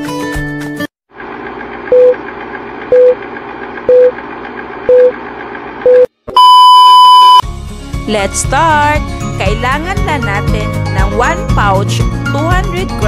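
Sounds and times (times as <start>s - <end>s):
long high beep: 5.9s - 7.4s
short beeps: 5.9s - 7.4s.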